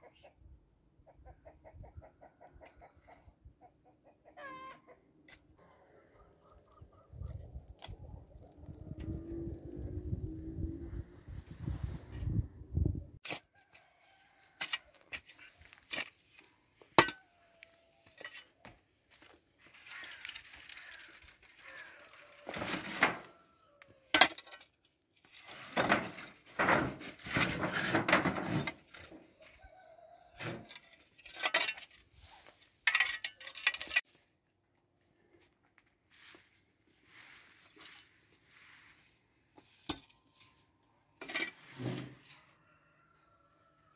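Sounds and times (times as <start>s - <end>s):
scraping and rustling: 19.6s - 23.4s, 25.2s - 29.5s, 36.1s - 42.6s.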